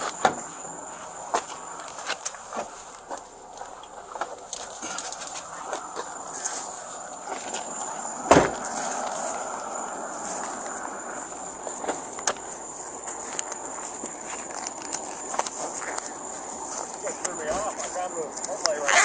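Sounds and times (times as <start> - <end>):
steady hiss: 0.0 - 19.0
loud thump: 0.2 - 0.5, 8.3 - 8.8.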